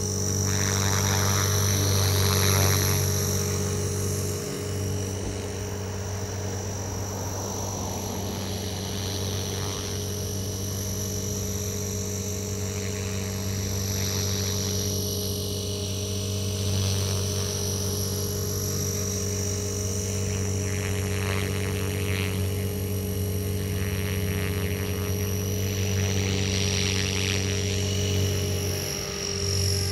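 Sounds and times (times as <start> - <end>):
helicopter rotor hum: 0.0 - 29.9
high-pitched electric motor whine: 0.0 - 29.9.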